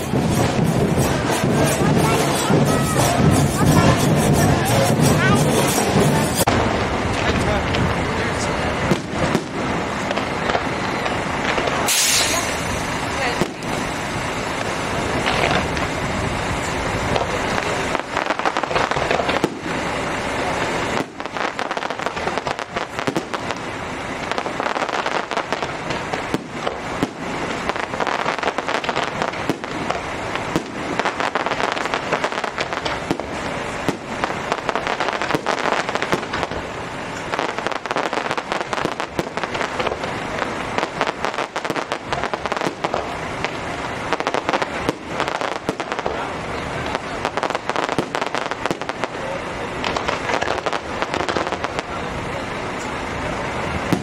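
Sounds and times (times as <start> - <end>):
low rumble: 0.0 - 21.2
fireworks bangs: 0.0 - 54.0.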